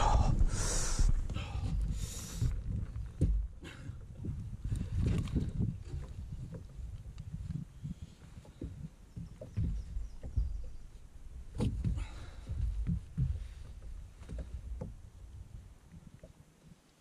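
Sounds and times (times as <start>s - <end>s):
thumps and knocks on boat deck: 2.7s - 4.5s, 5.6s - 10.8s, 11.5s - 15.0s.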